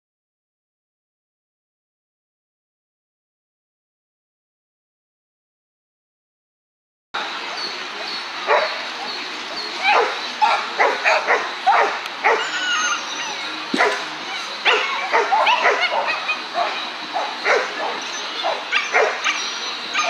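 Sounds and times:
dog barking: 0:08.5 - 0:08.8, 0:09.9 - 0:12.6, 0:13.8 - 0:20.0.

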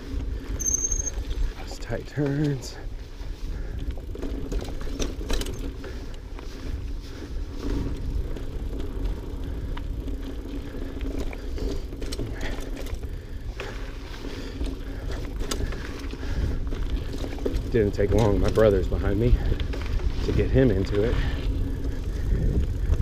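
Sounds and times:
bike rattling over bumps: 0:00.0 - 0:23.0
bike tyres rolling on dirt: 0:00.0 - 0:23.0
wind rumbling on microphone: 0:00.0 - 0:23.0.

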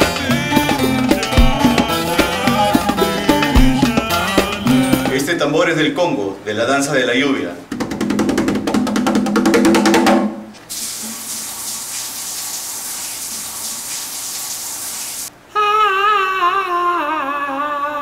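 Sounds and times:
fast hand drumming: 0:00.0 - 0:05.2, 0:07.7 - 0:10.3
falling water hiss: 0:10.7 - 0:15.3.

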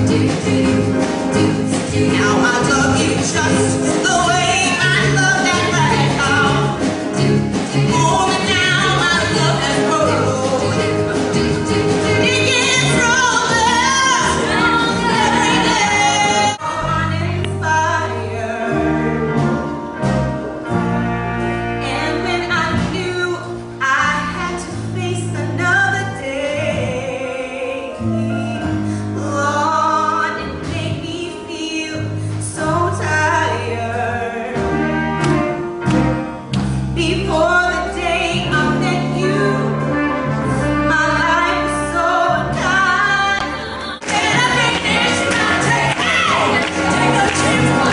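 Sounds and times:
live band playing: 0:00.0 - 0:47.9
sustained bass notes: 0:00.0 - 0:47.9
woman singing into a microphone: 0:01.7 - 0:06.8, 0:07.9 - 0:11.0, 0:12.1 - 0:19.1, 0:21.8 - 0:34.8, 0:37.0 - 0:40.0, 0:40.8 - 0:47.9.

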